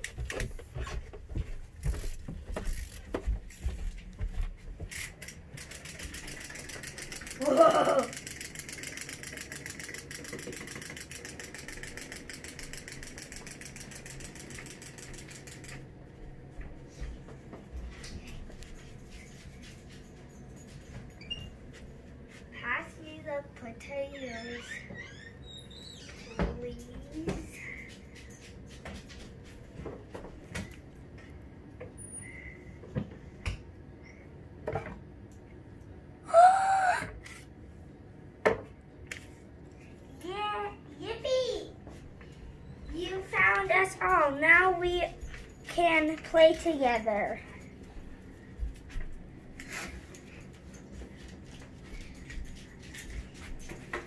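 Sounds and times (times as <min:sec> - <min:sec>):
wind-up toy clockwork ticking: 0:05.0 - 0:15.8
child squealing: 0:36.3 - 0:37.2.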